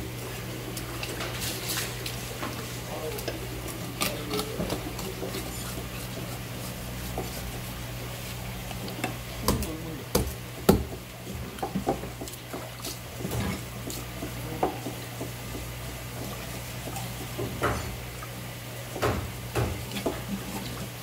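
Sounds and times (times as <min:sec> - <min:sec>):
knife knocking on cutting board: 0:09.4 - 0:11.0.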